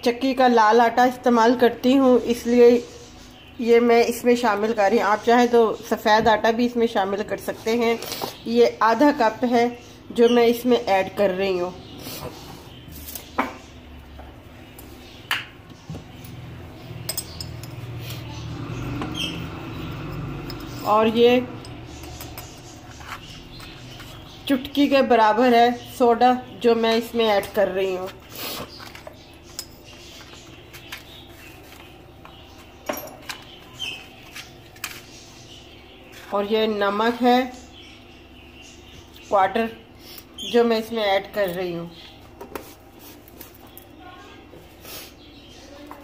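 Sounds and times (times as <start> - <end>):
kitchenware clinking: 17.0 - 18.0, 32.8 - 33.6.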